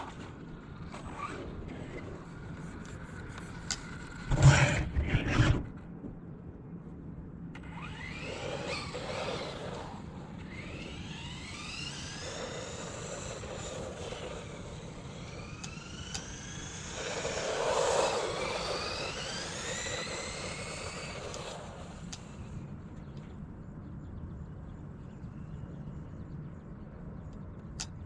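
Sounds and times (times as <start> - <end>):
electric motor whining: 3.3 - 5.7, 7.6 - 22.6.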